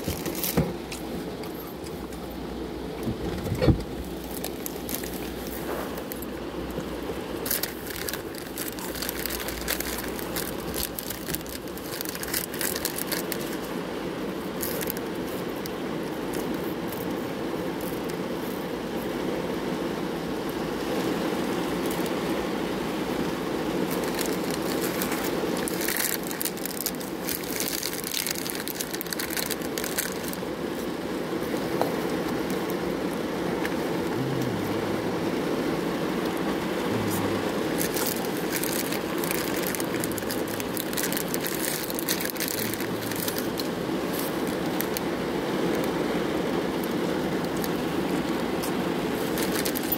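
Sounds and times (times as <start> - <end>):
steady low rumble: 33.8 - 45.0.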